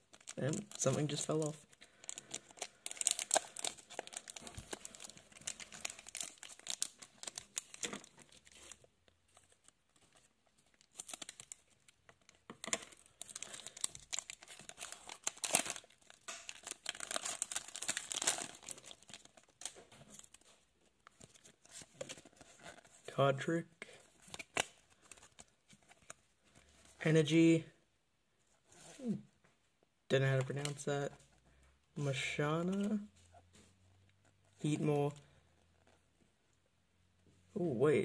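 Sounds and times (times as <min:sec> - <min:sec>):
foil wrapper crinkling and tearing: 0:00.0 - 0:09.6, 0:10.8 - 0:20.5.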